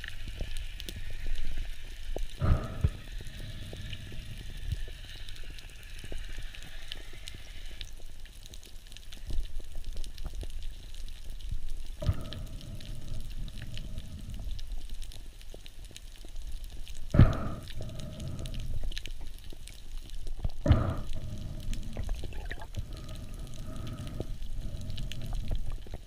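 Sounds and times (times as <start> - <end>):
small crackling ticks: 0.0 - 26.0
low underwater rumble: 17.2 - 26.0.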